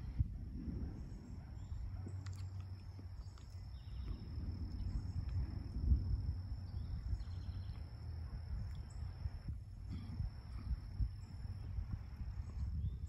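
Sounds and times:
low thunder rumble: 0.0 - 13.0
faint bird chirps: 1.0 - 5.4, 6.6 - 9.2.

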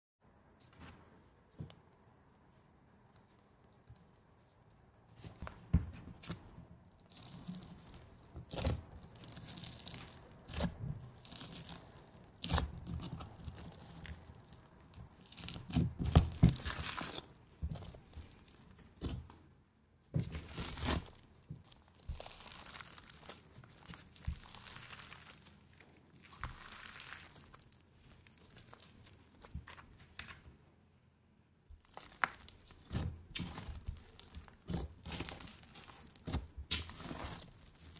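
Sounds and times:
slime crackling and squelching: 6.1 - 19.3, 20.1 - 30.2, 31.7 - 37.9.

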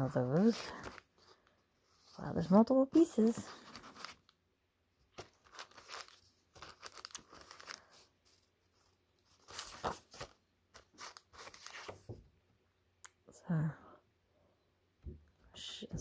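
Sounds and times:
paper sheets rustling: 0.3 - 4.3, 5.1 - 12.2.

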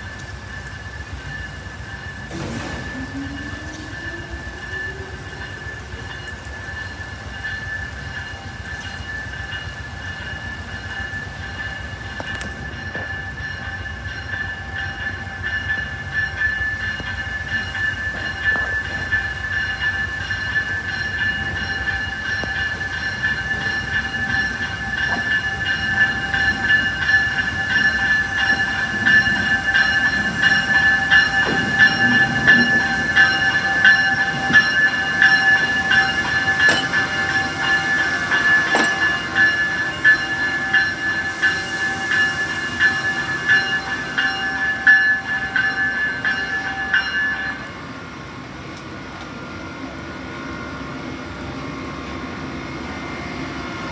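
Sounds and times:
electric locomotive whine and rumble: 0.0 - 53.9
train wheel clicks: 5.3 - 47.6.

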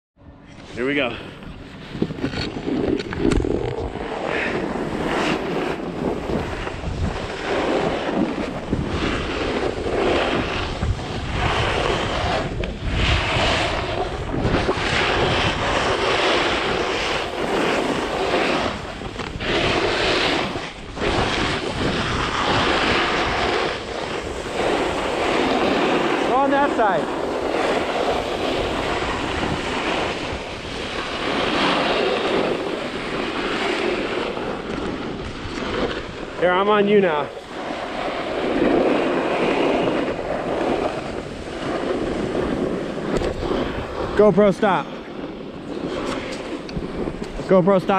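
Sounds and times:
wind on microphone: 0.2 - 47.9
snowboard scraping over snow: 0.6 - 47.9.

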